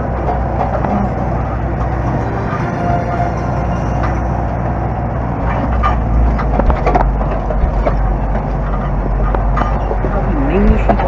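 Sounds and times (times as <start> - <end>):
tractor diesel engine drone: 0.0 - 11.0
cab knocks and rattles: 6.4 - 11.0.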